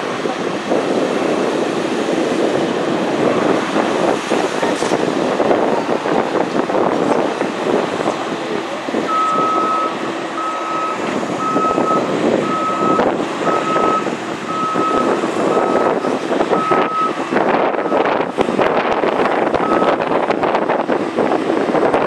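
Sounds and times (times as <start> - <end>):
jet engines idling: 0.0 - 22.0
wind on microphone: 0.0 - 22.0
electronic reversing alarm beeps: 9.1 - 17.2, 19.6 - 20.0.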